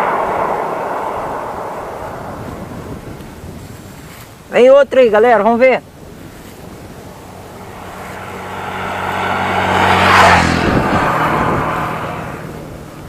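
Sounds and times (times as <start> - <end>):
vehicle driving past: 0.0 - 3.4, 6.6 - 12.9.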